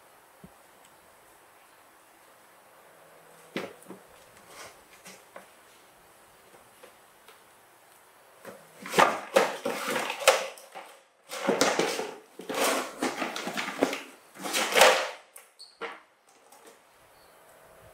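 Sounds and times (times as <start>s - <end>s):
toy truck clattering on wooden floor: 8.5s - 16.8s.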